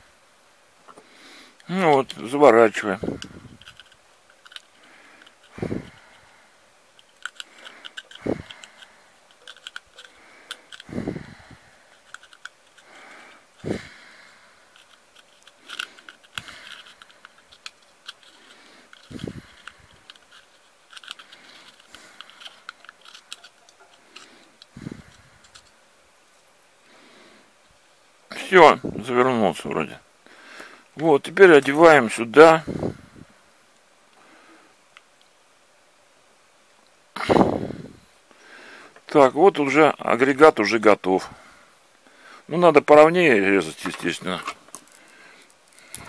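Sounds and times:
metallic clicks and scrapes: 3.2 - 6.2, 7.0 - 10.9, 11.9 - 13.4, 14.7 - 25.8.

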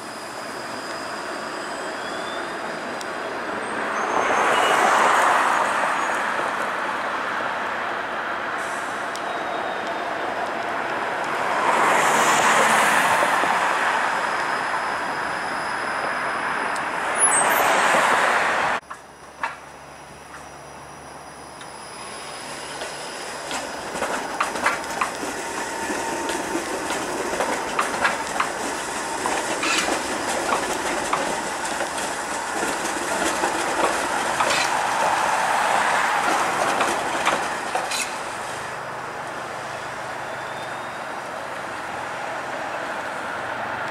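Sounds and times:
road traffic noise: 0.0 - 43.9
streetcar wheels clacking on track: 22.4 - 40.9.

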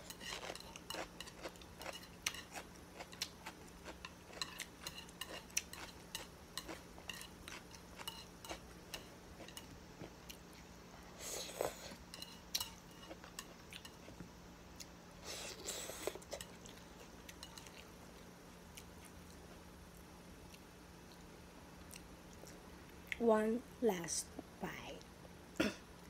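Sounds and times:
chewing: 0.1 - 10.7, 11.4 - 14.2.

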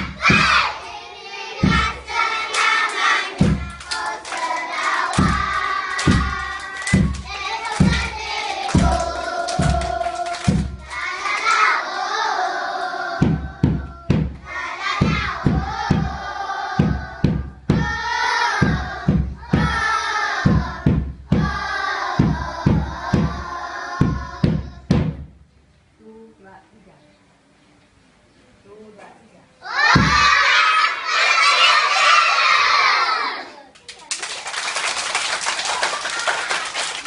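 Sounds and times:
children singing: 0.0 - 24.8, 29.7 - 33.5
children clapping in time: 1.6 - 11.9, 33.7 - 37.0.

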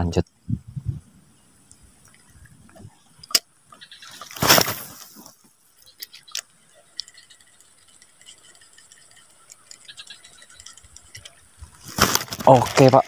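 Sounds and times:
sharp clicks: 5.8 - 11.5
fishing reel ticking: 5.8 - 11.6.

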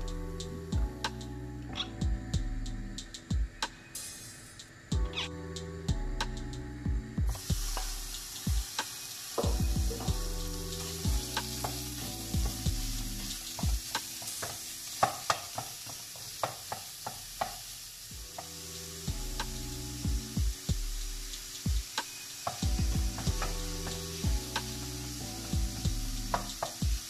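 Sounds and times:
meat sizzling in frying pan: 7.3 - 27.0.

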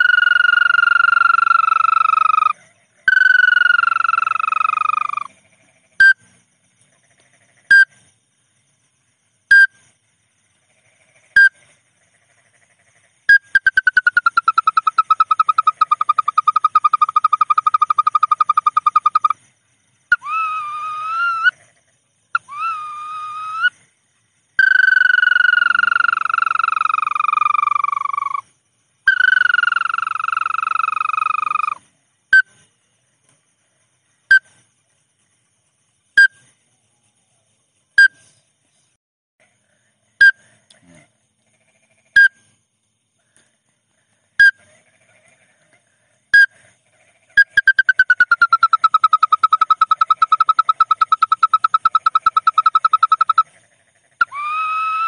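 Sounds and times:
fast-pulsing bird trill: 47.4 - 53.4.

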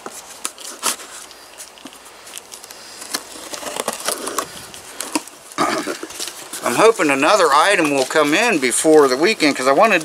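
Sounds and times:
blade slitting packing tape: 1.8 - 5.3.

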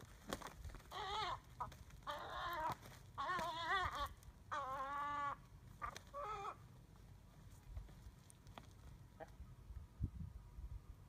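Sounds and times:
gulls harsh cries: 0.8 - 6.7.

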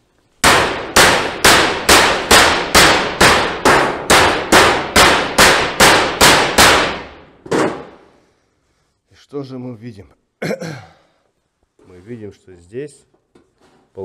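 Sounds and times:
mallet striking metal roofing: 0.4 - 8.1.

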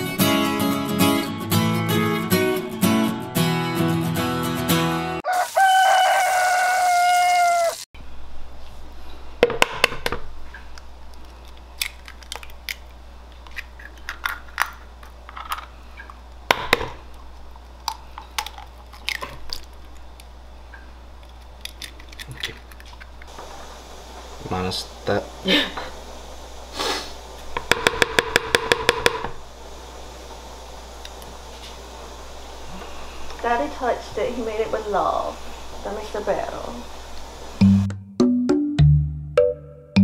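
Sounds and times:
acoustic guitar music: 0.0 - 5.2
rooster crowing: 5.2 - 7.9
eggs cracking against bowl: 9.6 - 23.3.

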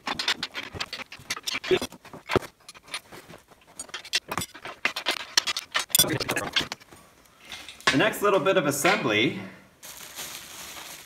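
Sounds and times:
wrenches clinking on steel frame: 5.4 - 6.8.

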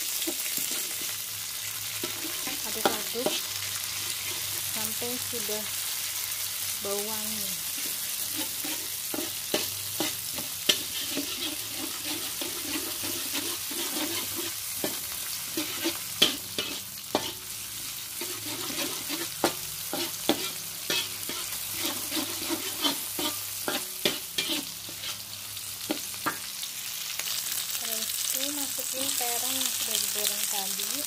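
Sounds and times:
food sizzling in hot oil: 0.0 - 31.0
metal spatula scraping wok: 0.1 - 1.2, 2.0 - 5.2, 7.6 - 26.5.

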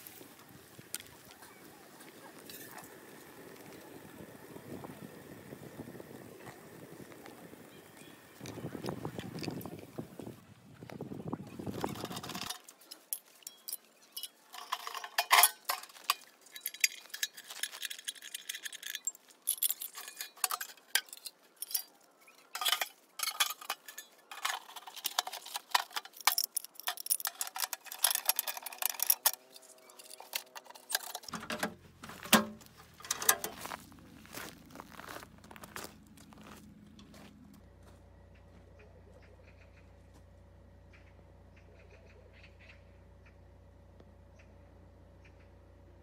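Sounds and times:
steel parts clinking together: 11.7 - 33.7.

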